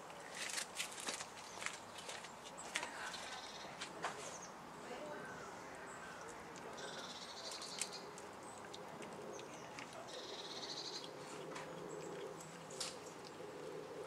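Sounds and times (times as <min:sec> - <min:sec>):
cat chewing crunches: 0:06.2 - 0:10.3, 0:10.9 - 0:14.0
bird trilling: 0:10.1 - 0:11.2.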